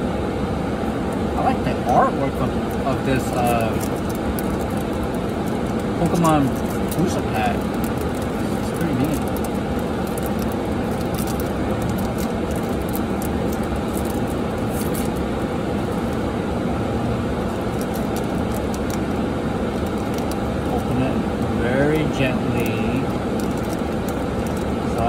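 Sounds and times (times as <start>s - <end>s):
car cabin hum: 0.0s - 25.0s
foil pack crinkling and tearing: 2.7s - 16.2s, 17.4s - 20.9s, 22.5s - 24.8s.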